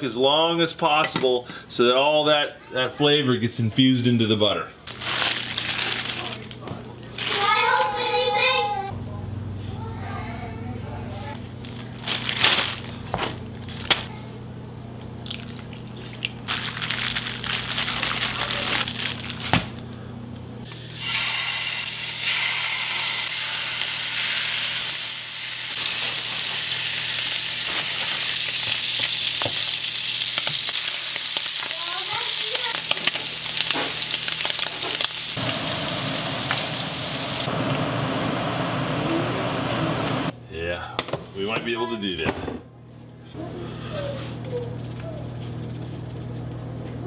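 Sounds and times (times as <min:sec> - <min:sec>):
plastic bag crinkling: 0:04.8 - 0:08.1, 0:11.4 - 0:14.1, 0:15.2 - 0:19.9, 0:27.6 - 0:35.4
scallops sizzling in frying pan: 0:20.7 - 0:37.5.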